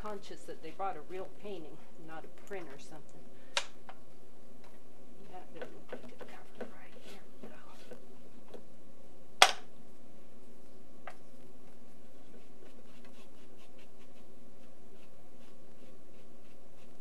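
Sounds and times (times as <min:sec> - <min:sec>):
paintbrush scratching on canvas: 0:06.2 - 0:08.0, 0:11.8 - 0:17.0.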